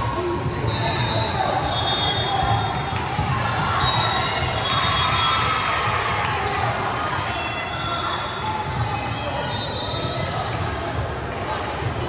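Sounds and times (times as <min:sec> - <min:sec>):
crowd chatter: 0:00.0 - 0:12.0
sneaker squeaks: 0:00.2 - 0:05.4, 0:07.3 - 0:10.4.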